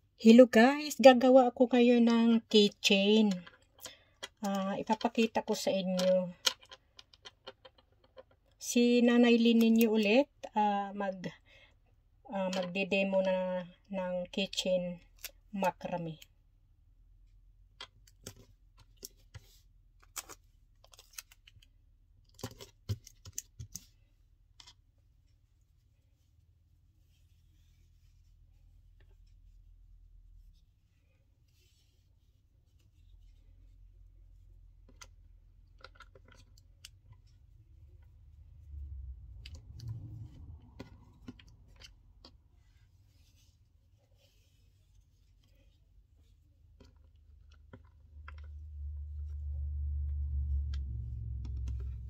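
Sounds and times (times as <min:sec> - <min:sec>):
low dull rumble: 0:37.7 - 0:42.2, 0:48.2 - 0:52.0.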